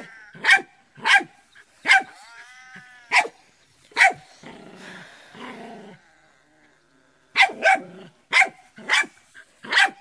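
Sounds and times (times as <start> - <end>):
puppy barking: 0.4 - 2.2, 3.1 - 3.4, 4.0 - 4.2, 7.4 - 10.0.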